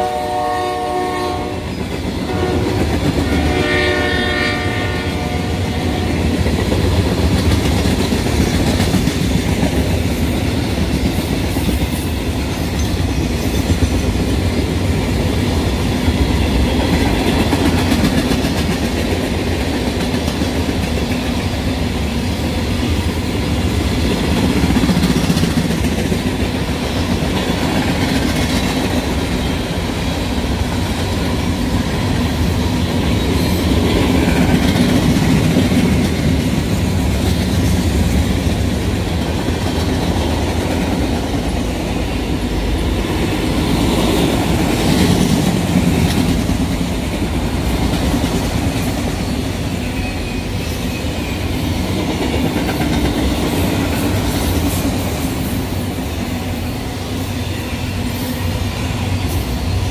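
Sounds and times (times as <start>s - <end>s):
train horn: 0.0s - 6.4s
freight train rumbling and rattling: 0.0s - 59.9s.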